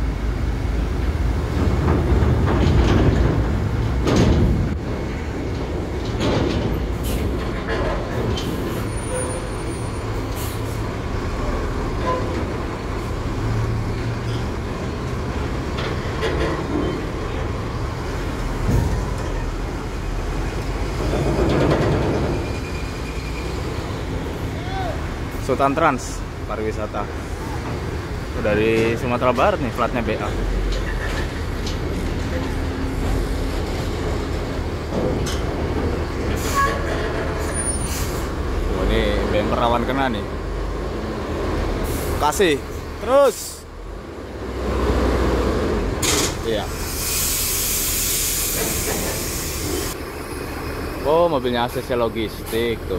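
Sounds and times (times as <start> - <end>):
diesel bus engine rumble: 0.0 - 52.9
knocks and clanks on ramp: 1.4 - 8.9, 15.6 - 17.6, 18.5 - 19.7, 20.9 - 22.7, 30.4 - 37.6.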